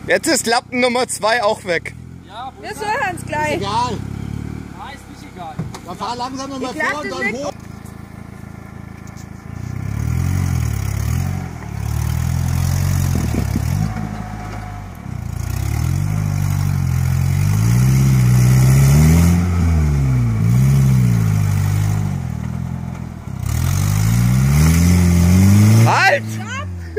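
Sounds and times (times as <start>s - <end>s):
car engine revving: 0.0s - 26.9s.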